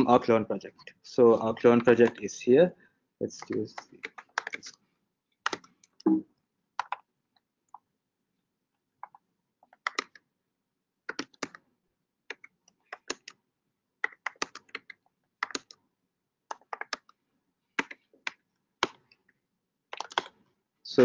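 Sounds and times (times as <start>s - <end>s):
typing on computer keyboard: 1.6s - 2.2s, 3.4s - 4.8s, 5.4s - 6.0s, 6.8s - 7.1s, 9.0s - 10.2s, 11.1s - 11.6s, 12.3s - 13.4s, 14.0s - 15.8s, 16.5s - 17.2s, 17.8s - 19.1s, 19.9s - 20.4s.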